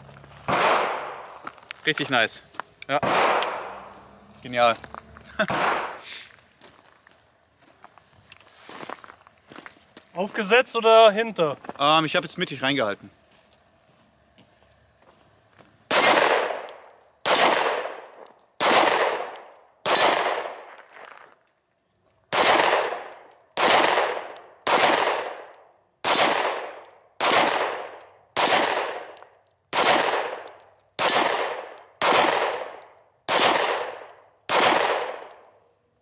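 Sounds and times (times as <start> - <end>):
echoing pistol shots: 0.5 - 1.4, 2.9 - 4.3, 5.5 - 6.0, 15.9 - 20.7, 22.3 - 35.4.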